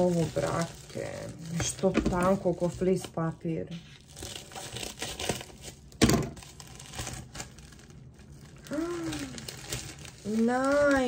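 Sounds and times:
plastic packaging crinkling: 0.0s - 11.0s
plastic ripping: 0.0s - 11.0s
person humming: 8.7s - 9.5s.

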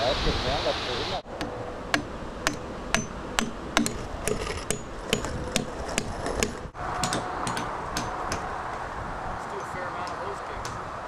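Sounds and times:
hammer striking nails: 1.4s - 8.5s.

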